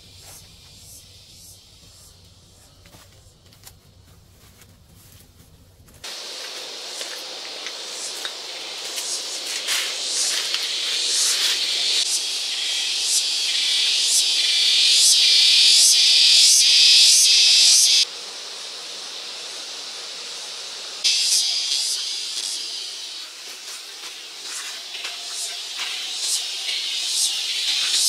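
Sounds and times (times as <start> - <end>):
insect buzzing: 0.0 - 4.0, 6.0 - 28.0.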